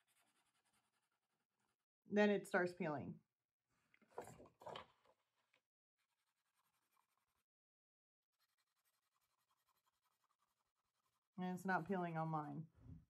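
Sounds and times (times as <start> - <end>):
pen scratching on paper: 0.0 - 1.1, 6.1 - 7.4, 8.4 - 11.9.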